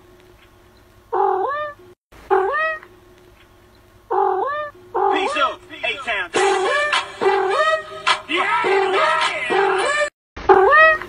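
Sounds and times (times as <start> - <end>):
cat meowing: 1.1 - 2.8, 4.1 - 5.6, 10.5 - 11.0.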